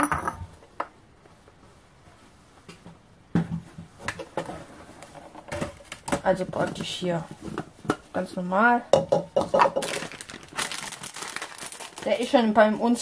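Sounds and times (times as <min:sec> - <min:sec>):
clicks and rustles of kitchen things: 0:08.9 - 0:12.1.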